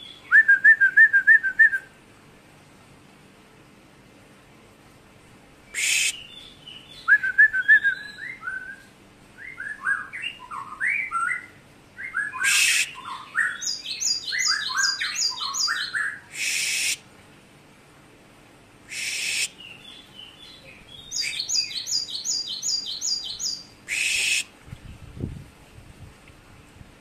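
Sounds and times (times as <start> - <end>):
bird singing whistled notes: 0.0 - 1.9, 5.7 - 17.0, 18.9 - 24.5.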